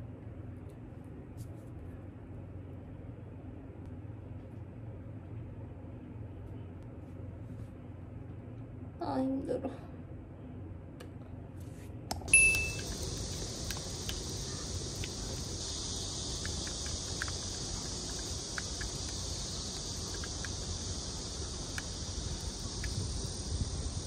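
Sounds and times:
faint clicks: 12.1s - 23.3s
insects chirring: 12.3s - 24.0s
wind rumble on microphone: 13.0s - 24.0s.

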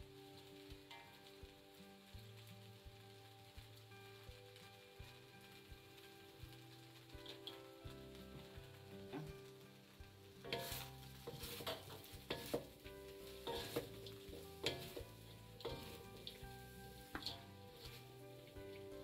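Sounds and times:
food sizzling in a wok: 0.0s - 19.0s
noodles scraping against a wok: 10.3s - 19.0s.

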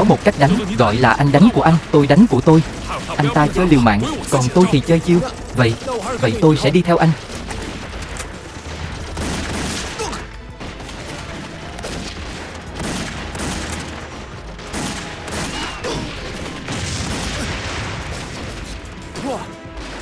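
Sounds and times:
film score music: 0.0s - 20.0s
rifle and machine-gun fire: 0.0s - 20.0s.

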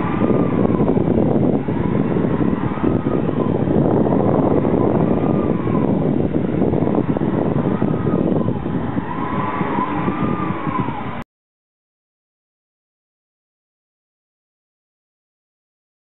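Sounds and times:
mechanical rumble: 0.0s - 11.2s
motor whine rising and falling: 0.0s - 11.2s.

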